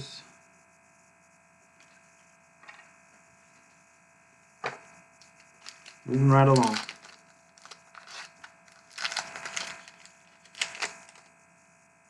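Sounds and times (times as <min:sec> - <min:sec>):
faint electrical hum: 0:00.0 - 0:12.0
trading cards rustling: 0:04.7 - 0:11.3
small ticks: 0:04.9 - 0:11.9.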